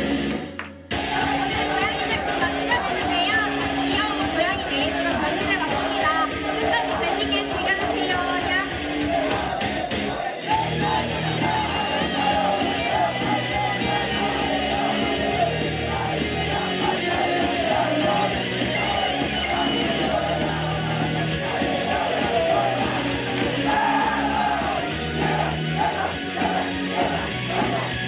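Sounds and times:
pop-rock song over loudspeakers: 0:00.0 - 0:28.0
women singing: 0:01.1 - 0:09.5, 0:10.5 - 0:28.0.

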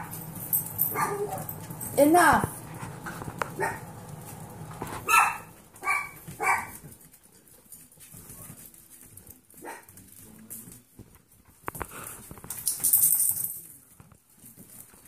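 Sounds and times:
puppy barking: 0:00.8 - 0:01.6, 0:03.5 - 0:04.0, 0:05.0 - 0:06.9, 0:09.6 - 0:10.0.

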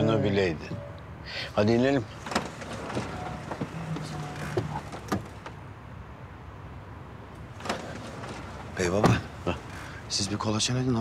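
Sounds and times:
rustling: 0:02.1 - 0:05.6
van door clicks and knocks: 0:02.1 - 0:05.6, 0:07.5 - 0:10.0.

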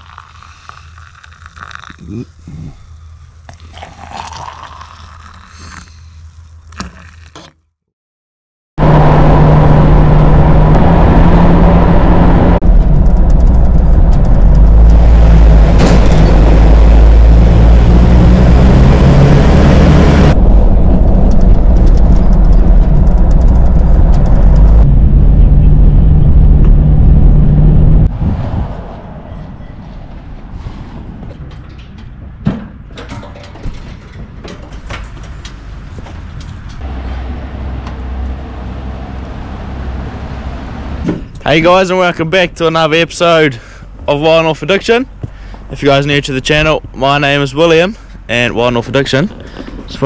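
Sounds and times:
hot water pouring into cup: 0:00.0 - 0:02.1, 0:03.5 - 0:05.9
vehicle driving noise: 0:08.8 - 0:50.0
wind and road noise: 0:08.8 - 0:50.0.

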